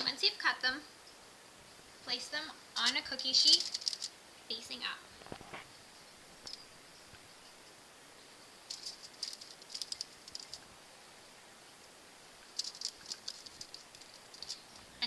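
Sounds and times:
aluminium foil crinkling: 2.8 - 4.2, 8.7 - 10.7, 12.4 - 14.9.

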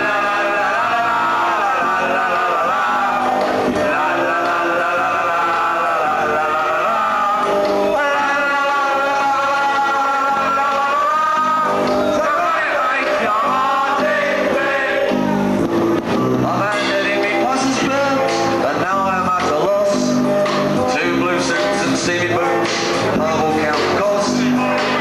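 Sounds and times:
man singing into a microphone: 0.0 - 15.2, 16.4 - 25.0
rock band playing: 0.0 - 25.0.

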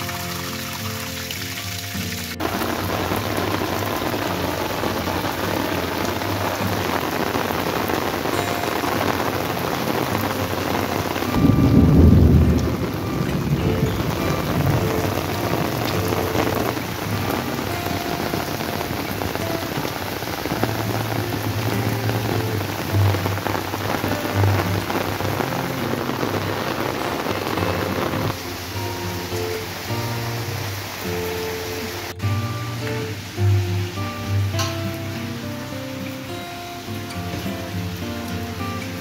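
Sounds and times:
heavy rain falling: 0.0 - 39.0
thunder rumble: 2.4 - 28.7.

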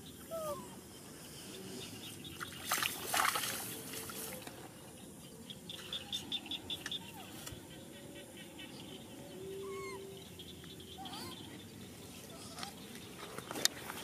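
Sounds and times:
water splashing and sloshing: 2.3 - 4.7.

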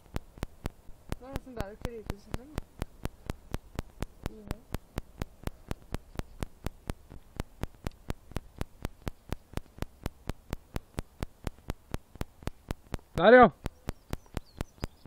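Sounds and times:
low hum: 0.0 - 15.0
sharp evenly spaced clicks: 0.0 - 15.0.

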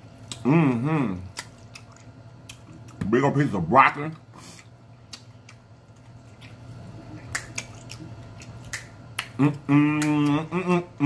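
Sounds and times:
man humming mmm: 0.3 - 1.3, 9.2 - 11.0
finger snaps: 7.3 - 7.7, 8.6 - 10.4.

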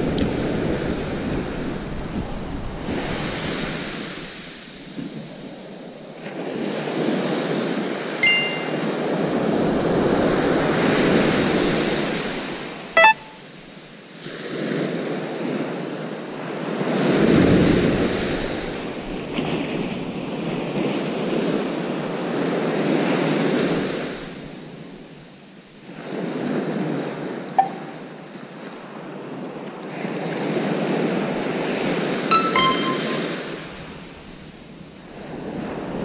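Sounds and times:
waves breaking on beach: 0.0 - 8.1, 13.9 - 27.5
short bright chime: 8.2 - 8.9, 13.0 - 13.4, 27.6 - 28.0, 32.3 - 33.7.

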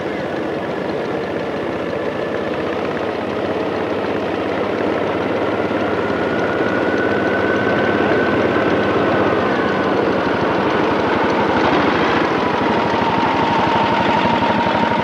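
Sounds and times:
steam locomotive running: 0.0 - 15.0.

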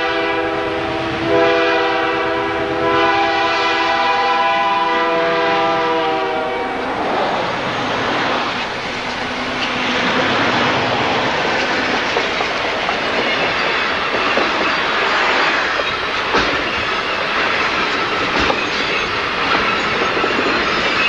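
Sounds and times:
steel wheels rumbling on rail: 0.0 - 21.0
wheels clacking over rail joints: 7.2 - 21.0.

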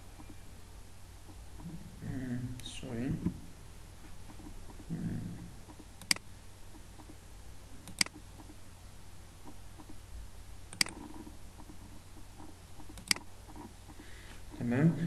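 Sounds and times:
faint low hum: 0.0 - 15.0
computer mouse clicks: 5.6 - 7.2, 7.8 - 8.6, 10.7 - 14.0.

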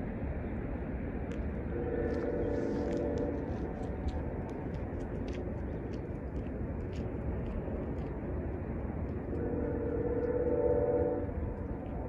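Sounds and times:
distant locomotive air horn: 1.7 - 3.7, 9.4 - 11.5.

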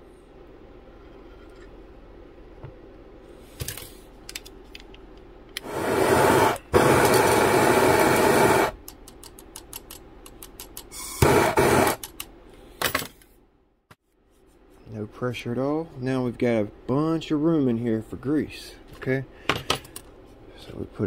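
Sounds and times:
gas torch hissing: 5.6 - 8.8, 10.9 - 12.0
small clicks and taps: 8.8 - 10.9.

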